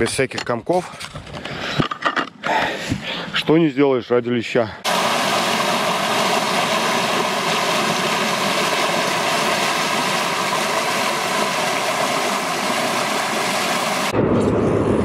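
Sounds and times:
hiss of water wash: 0:04.9 - 0:14.1.

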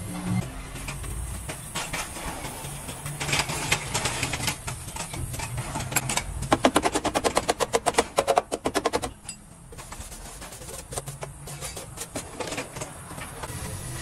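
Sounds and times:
wire brush scrubbing metal: 0:09.7 - 0:12.8.

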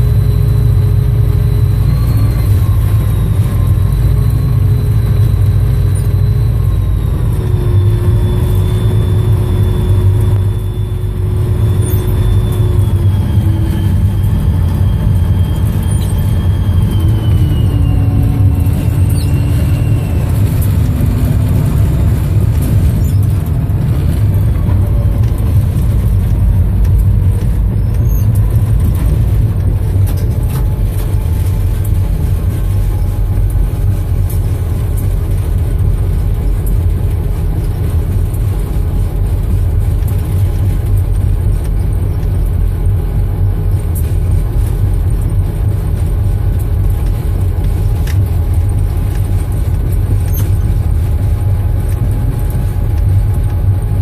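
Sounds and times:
diesel locomotive rumble: 0:00.0 - 0:54.0
faint whine gliding down: 0:00.0 - 0:54.0.

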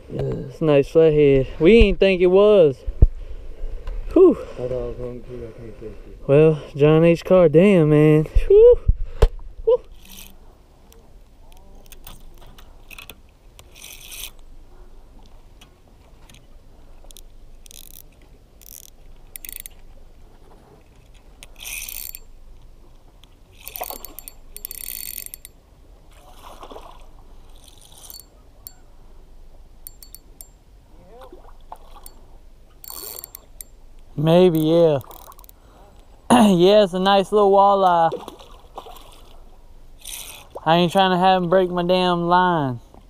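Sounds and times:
fishing reel whirring: 0:09.8 - 0:10.4, 0:11.8 - 0:14.4, 0:17.1 - 0:20.0, 0:21.4 - 0:22.4, 0:23.5 - 0:25.6, 0:27.4 - 0:28.9, 0:29.8 - 0:30.6, 0:32.0 - 0:33.8, 0:34.4 - 0:35.6, 0:40.0 - 0:40.5
fishing gear handled: 0:09.8 - 0:14.5, 0:16.0 - 0:25.6, 0:26.4 - 0:28.9, 0:29.8 - 0:30.6, 0:31.7 - 0:36.1, 0:40.0 - 0:40.6.

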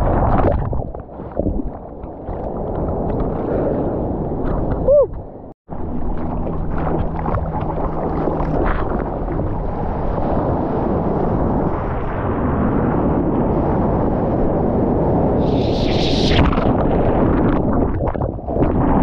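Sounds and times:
ocean water splashing: 0:00.0 - 0:13.8
wind buffeting microphone: 0:00.0 - 0:19.0.

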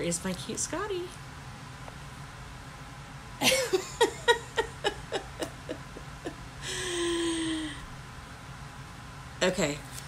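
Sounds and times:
woman laughing heartily: 0:03.4 - 0:07.8.

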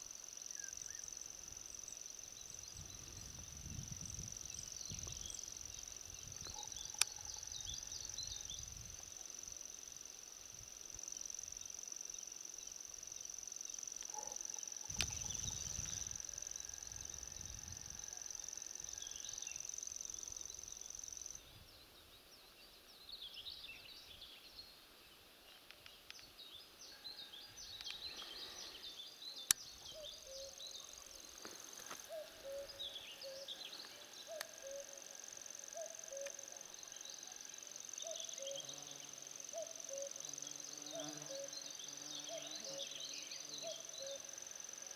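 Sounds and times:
insect high-pitched trill: 0:00.0 - 0:21.4, 0:26.1 - 0:44.9
small birds chirping: 0:27.7 - 0:34.9.

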